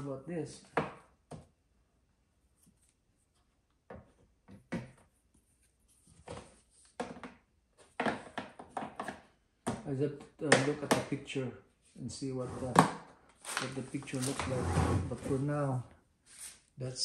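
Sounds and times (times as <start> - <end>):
plastic bracket knocking and scraping: 6.2 - 9.8.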